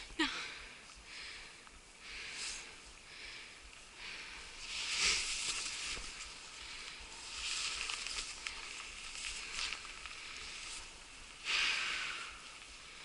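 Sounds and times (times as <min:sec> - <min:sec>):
footsteps through grass: 0:04.6 - 0:11.2.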